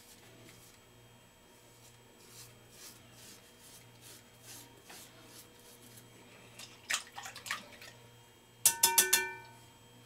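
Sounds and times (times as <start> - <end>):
razor scraping over stubble: 1.8 - 6.1.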